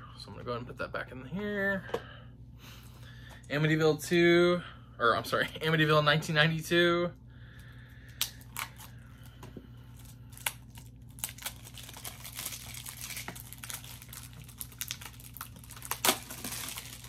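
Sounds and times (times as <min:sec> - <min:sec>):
packaging crinkling: 0:09.9 - 0:17.0.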